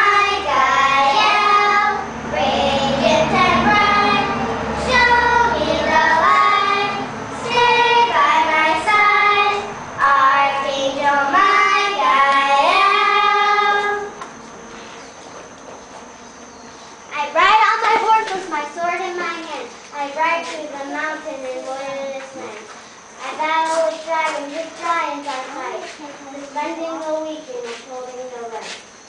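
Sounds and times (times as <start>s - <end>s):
young children singing: 0.0s - 14.3s.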